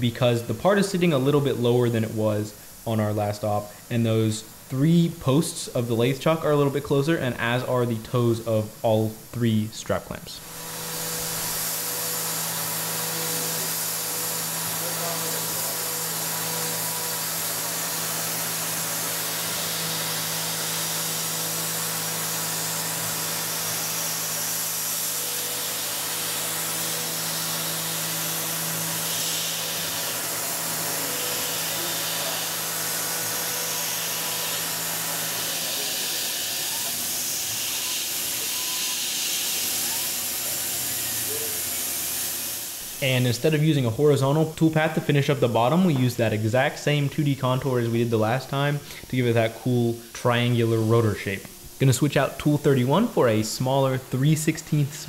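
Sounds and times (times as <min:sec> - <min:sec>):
coolant spray hiss: 0:00.0 - 0:55.0
milling machine cutting metal: 0:10.4 - 0:43.6.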